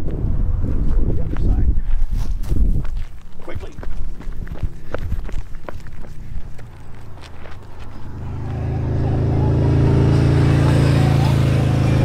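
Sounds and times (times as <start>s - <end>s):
motorcycle engine approaching: 4.0s - 12.0s.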